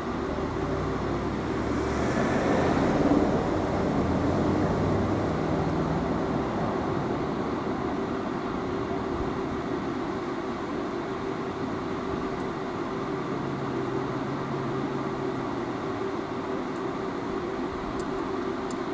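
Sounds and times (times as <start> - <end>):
tram hum and rumble: 0.0 - 18.9.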